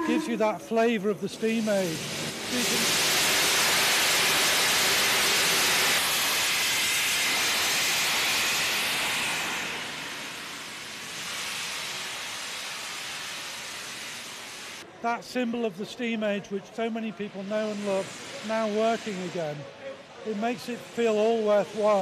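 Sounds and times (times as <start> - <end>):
steam locomotive hissing steam: 0.0 - 22.0.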